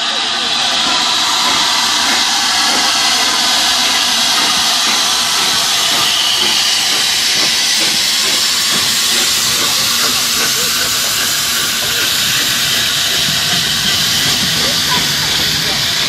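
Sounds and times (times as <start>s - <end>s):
steam hissing from locomotive: 0.0s - 16.0s.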